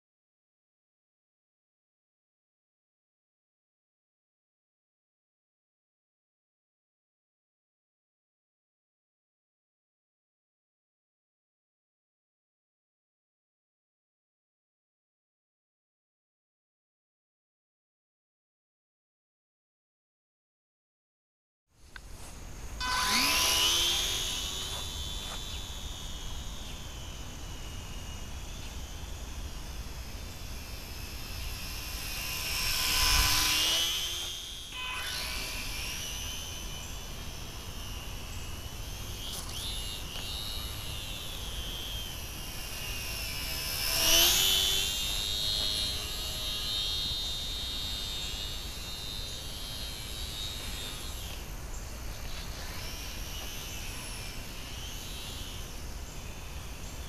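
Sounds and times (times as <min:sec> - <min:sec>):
small electric plane motor whining: 0:21.8 - 0:57.0.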